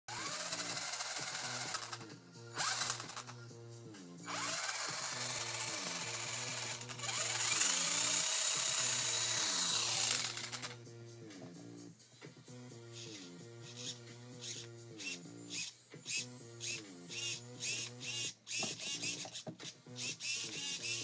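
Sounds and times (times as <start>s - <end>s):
electric motor whine revving: 0.1s - 3.4s, 4.2s - 10.8s, 12.9s - 19.3s
background music: 0.1s - 21.0s.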